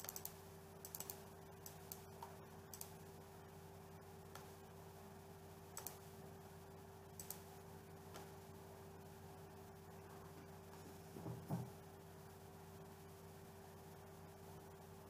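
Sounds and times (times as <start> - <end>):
computer mouse clicks: 0.0 - 3.0, 5.8 - 6.0, 7.2 - 7.4
steady low hum: 0.0 - 15.0.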